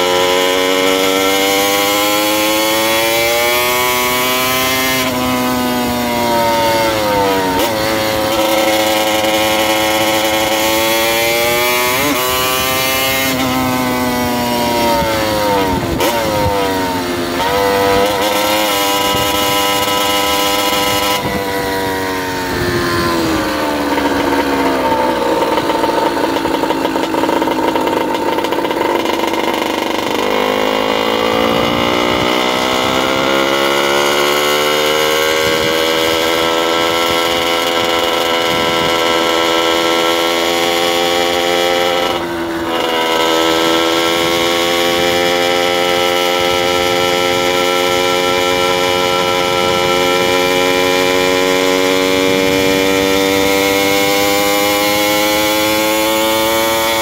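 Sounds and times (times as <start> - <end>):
small bicycle engine running: 22.4 - 40.4.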